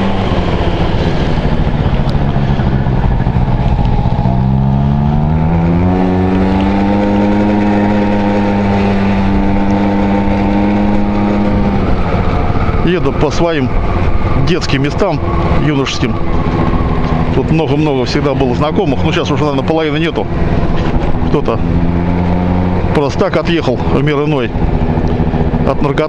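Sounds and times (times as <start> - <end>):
scooter two-stroke engine running: 0.1 - 12.6.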